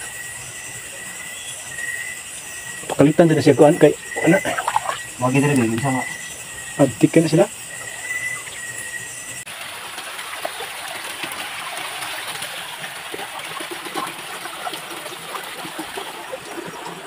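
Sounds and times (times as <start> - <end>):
creek water rushing: 2.8 - 6.2, 9.5 - 17.0
small water splashes: 4.0 - 6.2, 9.5 - 17.0.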